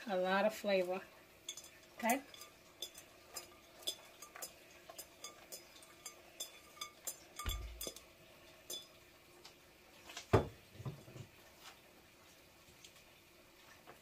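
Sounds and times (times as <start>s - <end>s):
glass bowl clinking against pot: 1.5s - 9.0s.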